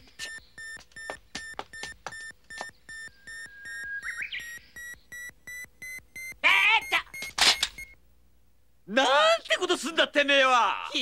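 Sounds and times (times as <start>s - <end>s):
camera self-timer beeping: 0.2s - 6.3s.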